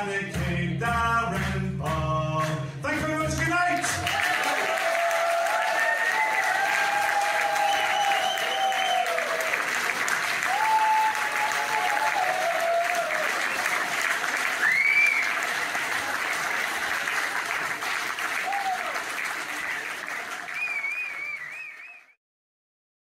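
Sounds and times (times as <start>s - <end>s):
audience applauding: 1.4s - 22.2s
crowd cheering: 3.2s - 22.2s
person whistling: 7.6s - 9.1s, 14.6s - 15.4s, 20.5s - 22.2s.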